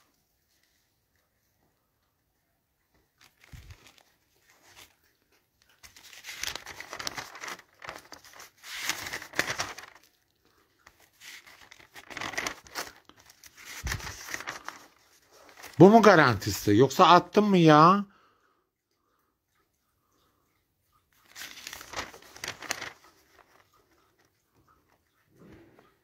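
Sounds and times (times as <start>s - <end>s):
packaging rustling and crinkling: 3.2s - 5.0s, 5.7s - 16.4s, 21.2s - 24.3s.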